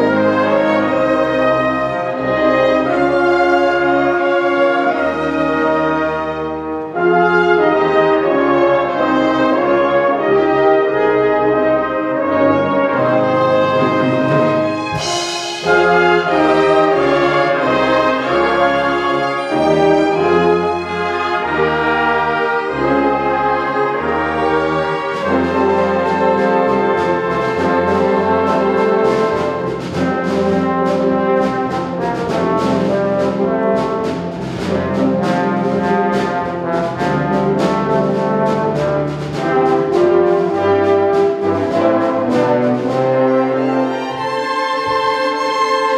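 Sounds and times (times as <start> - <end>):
orchestra playing brass-heavy chords: 0.0 - 45.9
rhythmic beat of sharp accents: 13.1 - 45.9.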